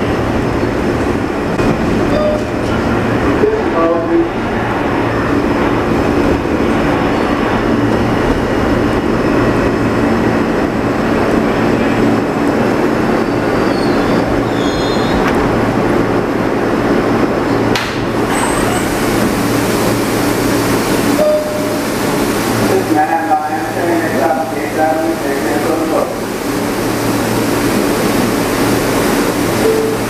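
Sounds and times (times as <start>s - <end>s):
wheels rumbling on rail: 0.0s - 30.0s
faint brief squeals: 13.6s - 15.2s.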